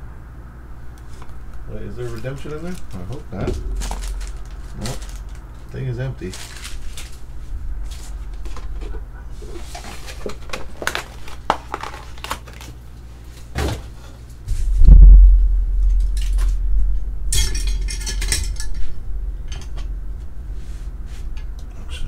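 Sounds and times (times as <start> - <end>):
foil envelope crinkling: 1.0 - 13.5
dull low thump: 3.4 - 4.7, 14.5 - 17.4.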